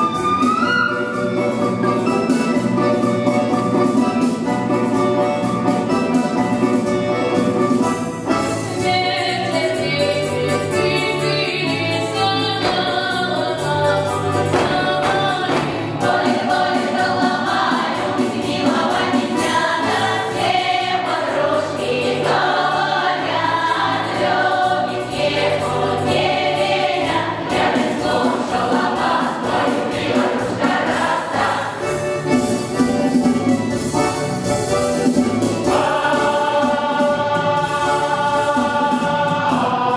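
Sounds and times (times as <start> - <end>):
mixed chorus singing: 8.7 - 32.0, 35.6 - 39.9.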